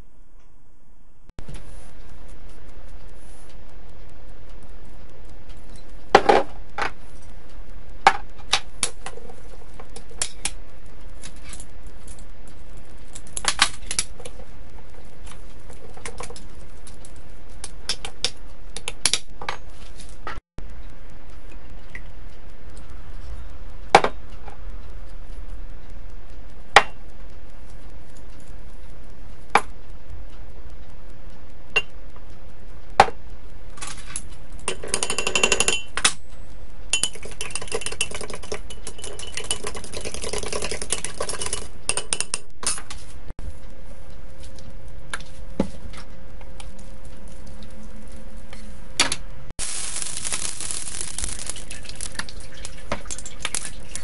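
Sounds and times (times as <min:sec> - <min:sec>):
fork whisking liquid: 0:36.9 - 0:42.3, 0:51.2 - 0:54.0
utensil clinking on glass cup: 0:37.0 - 0:42.2
hot wok hissing: 0:49.6 - 0:52.2.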